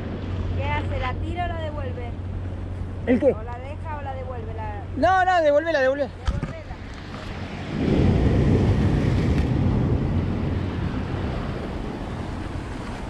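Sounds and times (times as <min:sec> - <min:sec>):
sea surf washing against rocks: 0:06.1 - 0:13.0
wind buffeting microphone: 0:06.1 - 0:13.0.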